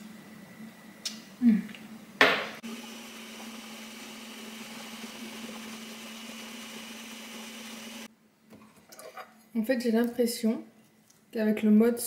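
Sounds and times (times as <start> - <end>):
ice cream maker motor hum: 2.6 - 8.1.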